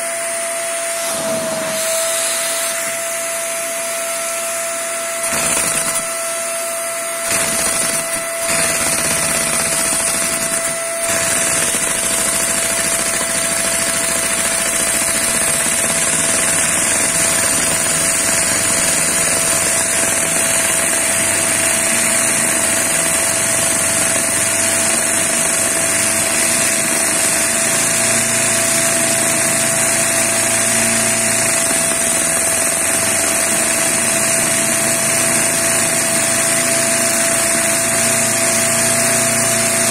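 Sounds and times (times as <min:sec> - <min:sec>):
vacuum cleaner whine: 0:00.0 - 0:14.3
small vacuum engine running: 0:00.0 - 0:39.9.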